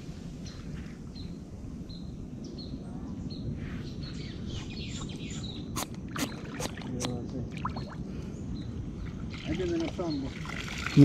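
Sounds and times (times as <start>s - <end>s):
bird chirping: 0.4s - 9.2s.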